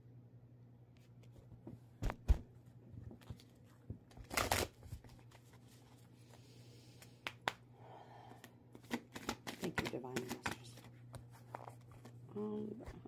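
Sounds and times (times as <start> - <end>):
cards shuffling: 3.2 - 6.4, 8.7 - 12.2.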